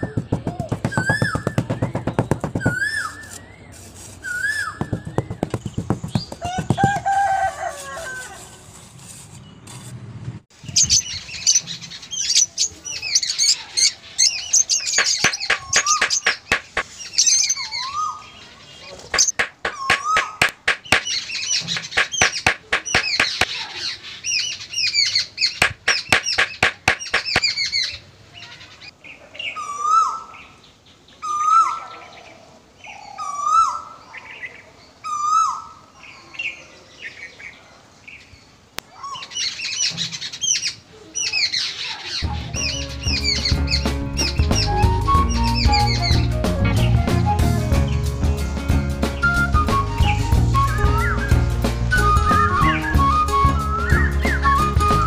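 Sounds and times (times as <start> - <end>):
birds chirping and twittering: 0.0 - 8.2, 10.5 - 47.1
rooster crowing: 6.4 - 8.5
rapid clicks or flutters: 15.0 - 16.8, 19.1 - 23.5.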